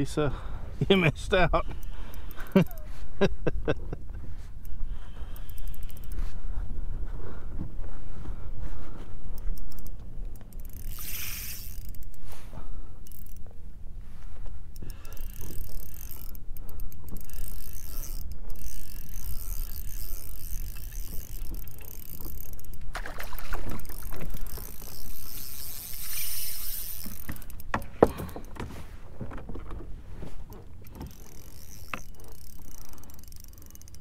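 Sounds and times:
water rumble: 0:18.0 - 0:33.7.

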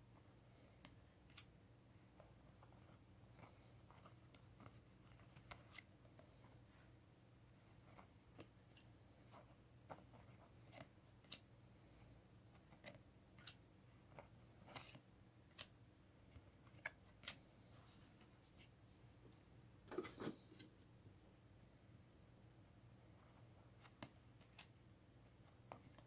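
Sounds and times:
trading cards clicking and sliding: 0:12.6 - 0:13.6, 0:14.6 - 0:15.8.

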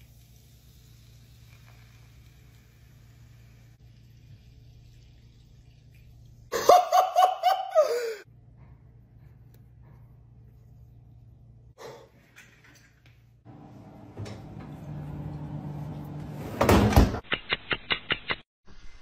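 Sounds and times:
high-pitched excited laughter: 0:06.5 - 0:08.2.

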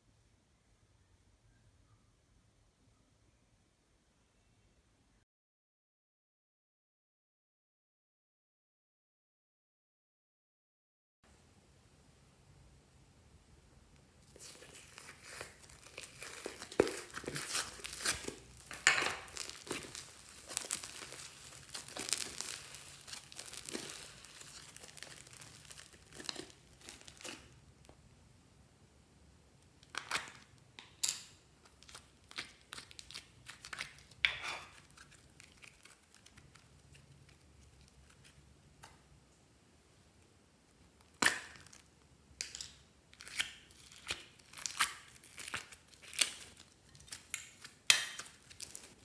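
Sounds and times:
slime crackling and popping: 0:14.2 - 0:27.6, 0:29.8 - 0:38.9, 0:40.8 - 0:49.0.

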